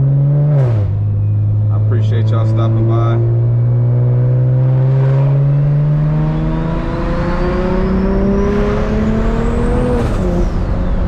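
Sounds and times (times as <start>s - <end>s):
car engine pulling in gear: 5.2s - 11.0s.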